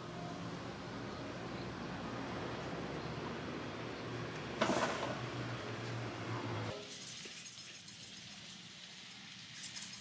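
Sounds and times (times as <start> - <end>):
buns sizzling in a pan: 6.7 - 10.0.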